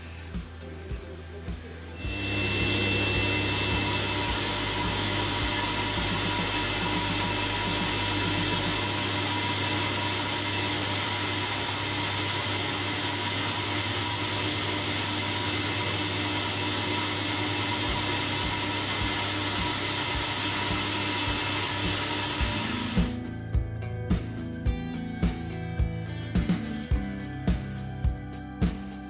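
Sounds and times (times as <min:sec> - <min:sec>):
table saw cutting wood: 0:02.0 - 0:23.2.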